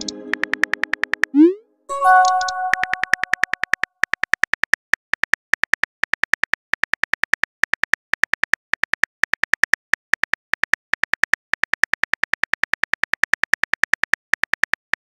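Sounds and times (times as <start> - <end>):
chiming message tone: 1.4 - 3.4.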